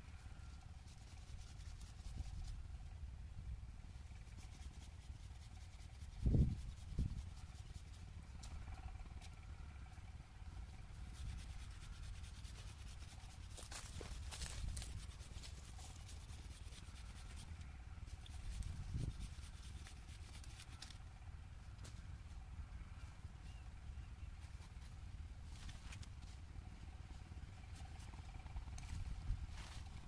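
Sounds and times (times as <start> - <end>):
low wind rumble: 0.0 - 30.0
leaves and branches rustling: 10.7 - 30.0.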